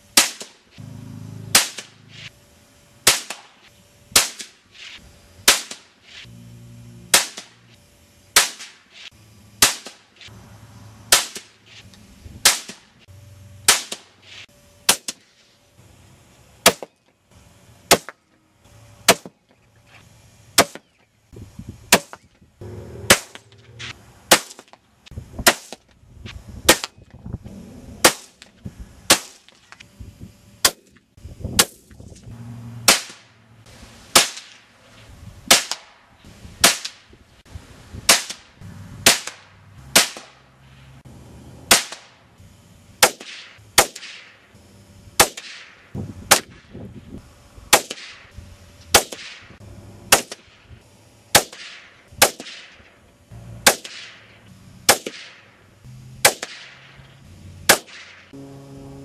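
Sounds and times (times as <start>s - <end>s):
rifle shots cracking: 1.5s - 1.9s, 7.1s - 7.6s, 11.1s - 11.5s, 23.0s - 24.7s, 39.0s - 40.4s, 51.3s - 52.8s, 53.6s - 54.3s, 54.9s - 55.5s, 56.2s - 57.0s, 57.7s - 58.2s.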